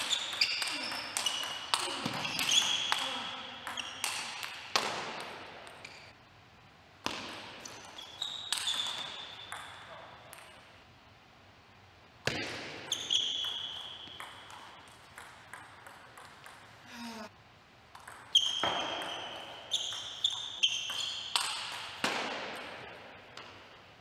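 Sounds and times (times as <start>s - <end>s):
shoe squeaks on court floor: 0.0s - 4.5s, 7.6s - 10.0s, 12.9s - 14.4s, 18.3s - 21.6s.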